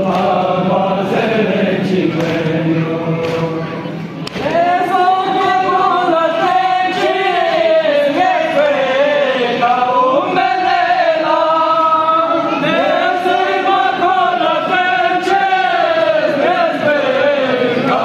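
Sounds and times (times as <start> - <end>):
men chanting a lament: 0.0 - 18.0.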